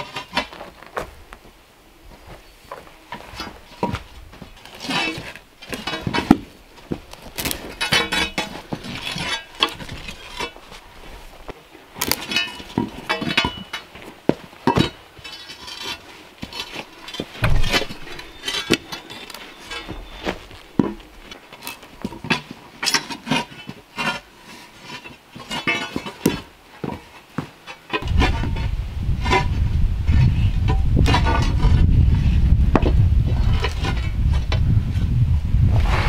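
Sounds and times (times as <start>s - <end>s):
low rumbling noise: 17.3s - 19.0s, 28.0s - 36.0s.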